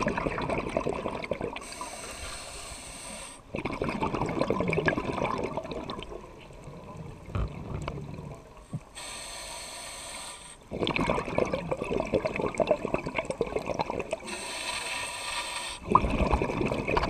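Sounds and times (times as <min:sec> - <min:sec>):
crackling exhaust bubbles: 0:00.0 - 0:01.8, 0:03.5 - 0:09.0, 0:10.7 - 0:14.4, 0:15.8 - 0:17.0
regulator inhalation hiss: 0:01.6 - 0:03.4, 0:08.9 - 0:10.6, 0:14.2 - 0:15.9.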